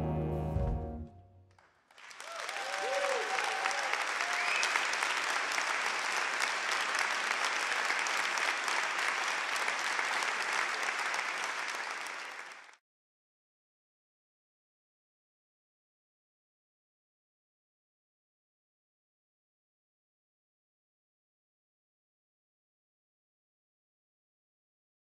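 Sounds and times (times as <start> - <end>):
big band final chord: 0.0 - 1.2
audience applauding: 1.6 - 12.8
people cheering: 2.0 - 12.8.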